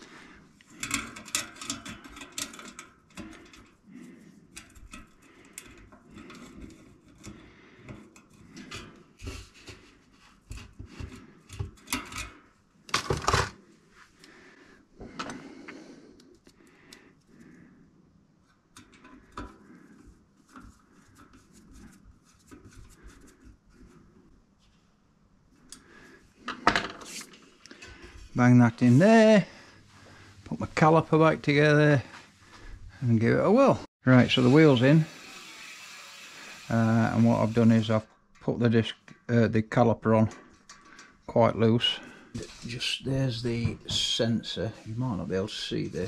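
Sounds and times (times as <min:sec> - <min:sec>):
metal clicks of bicycle parts: 0:00.6 - 0:03.8.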